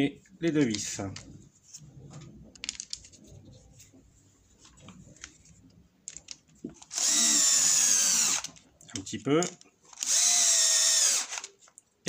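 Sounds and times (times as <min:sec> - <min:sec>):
small parts clicking: 0:02.5 - 0:03.2, 0:05.1 - 0:11.9
electric screwdriver whining: 0:06.8 - 0:08.6, 0:09.9 - 0:11.5.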